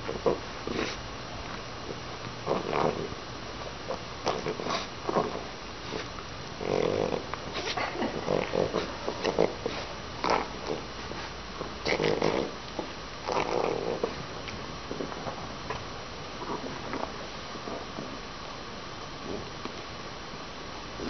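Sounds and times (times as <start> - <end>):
puppy snorting and grunting: 0.0 - 1.0, 1.9 - 3.2, 3.8 - 12.6, 13.2 - 14.3.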